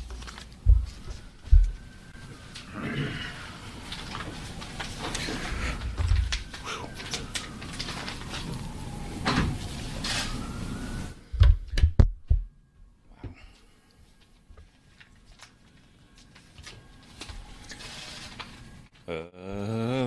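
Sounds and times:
rustling: 14.0s - 19.0s.

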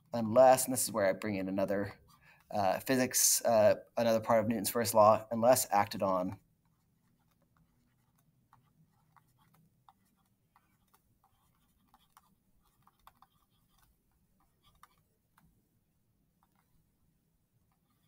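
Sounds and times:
stylus tapping on touchscreen: 6.6s - 15.5s.

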